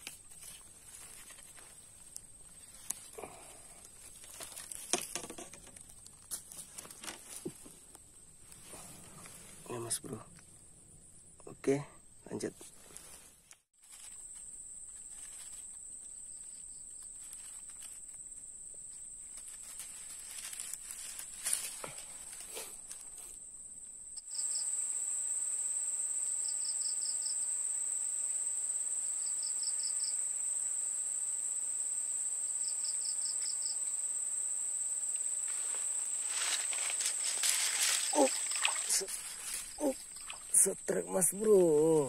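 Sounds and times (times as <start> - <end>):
clicks and rustles: 3.8 - 8.6, 18.8 - 23.3, 36.3 - 40.5
insects buzzing: 13.8 - 42.0
insect chirp of quick pulses: 13.9 - 42.0.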